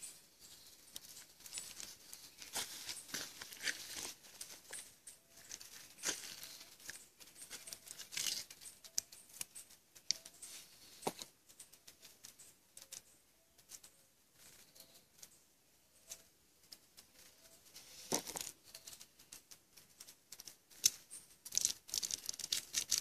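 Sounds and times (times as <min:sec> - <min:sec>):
paper and dry leaves rustling: 0:00.0 - 0:11.2, 0:17.0 - 0:23.0.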